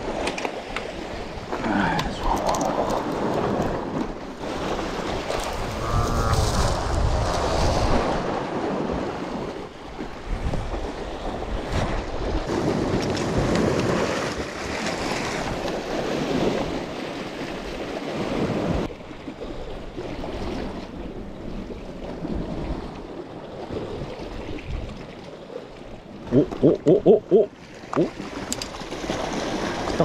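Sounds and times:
waves washing against rocks: 0:00.0 - 0:30.0
wind buffeting microphone: 0:00.9 - 0:25.2.

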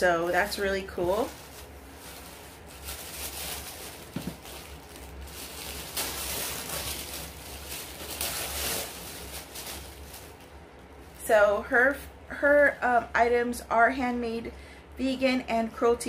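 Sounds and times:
tissue paper rustling: 0:00.1 - 0:11.4.

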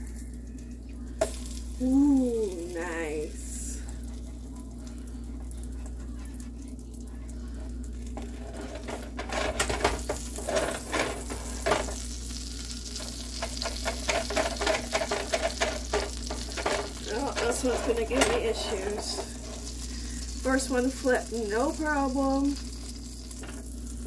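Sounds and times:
pancakes sizzling in a frying pan: 0:01.2 - 0:24.0
spatula scraping and knocking pan: 0:08.2 - 0:12.0, 0:13.0 - 0:19.7.

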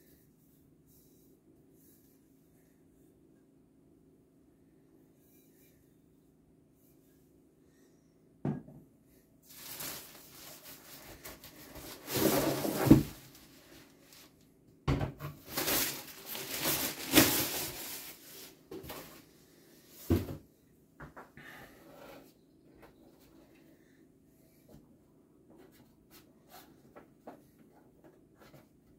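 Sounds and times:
plastic bag rustling: 0:09.5 - 0:14.4, 0:15.3 - 0:19.3.

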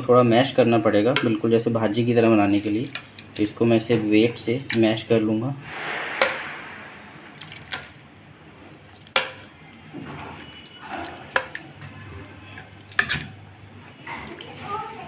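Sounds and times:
masher squelching vegetables: 0:08.6 - 0:14.7.

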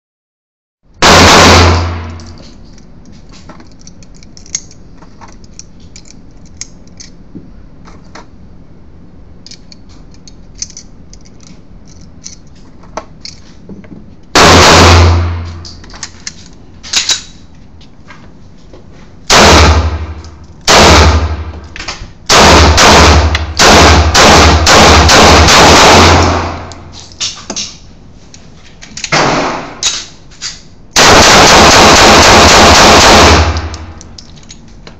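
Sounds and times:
pistol shots echoing indoors: 0:01.0 - 0:02.3, 0:14.4 - 0:15.7, 0:19.3 - 0:21.7, 0:22.3 - 0:26.9, 0:29.1 - 0:30.1, 0:31.0 - 0:34.2
cartridges clicking into magazine: 0:33.3 - 0:34.6.

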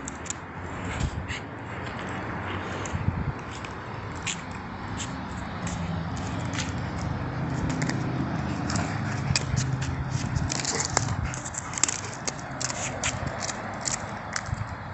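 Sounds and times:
dog gnawing a pinecone: 0:04.2 - 0:14.8.

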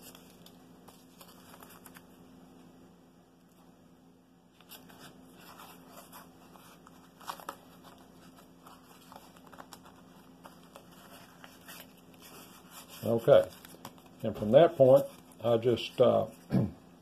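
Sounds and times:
tape rustling and crinkling: 0:00.0 - 0:02.2, 0:04.6 - 0:15.6.

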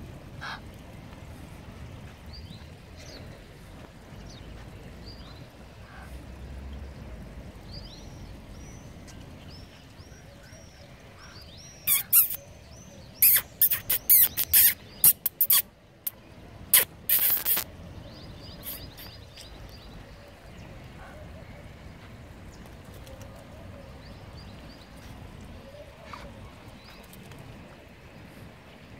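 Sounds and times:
small bird chirping: 0:10.6 - 0:12.5, 0:13.2 - 0:19.8.

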